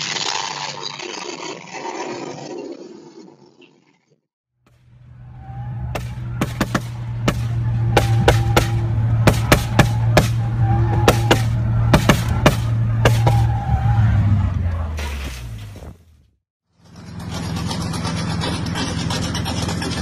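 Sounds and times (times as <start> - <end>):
car engine at high revs: 4.7 - 15.0, 16.8 - 20.0
sharp exhaust pops and cracks: 5.9 - 10.4.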